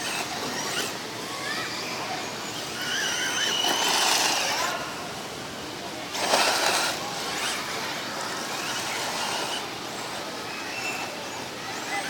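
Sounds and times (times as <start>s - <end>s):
rc buggy motor whirring: 0.0s - 5.0s, 6.1s - 12.0s.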